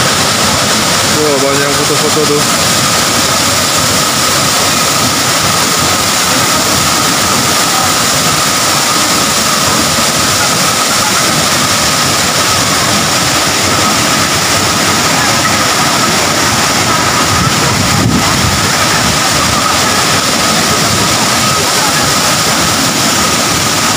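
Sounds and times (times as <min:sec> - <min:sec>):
waterfall rushing: 0:00.0 - 0:23.9.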